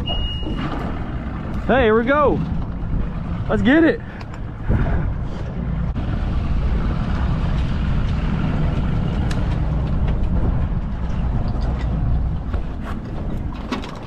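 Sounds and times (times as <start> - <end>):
outboard motor running: 0.1 - 6.9.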